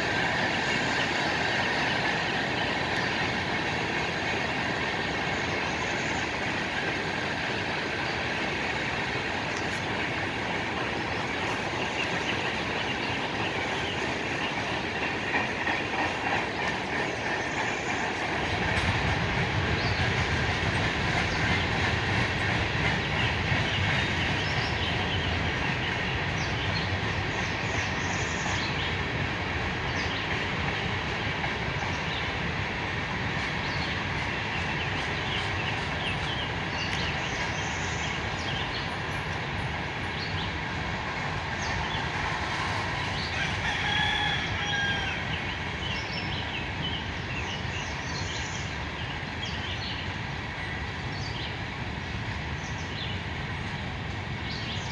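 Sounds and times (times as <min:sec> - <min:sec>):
freight train rumbling past: 0:00.0 - 0:54.9
rooster crowing: 0:43.3 - 0:45.3.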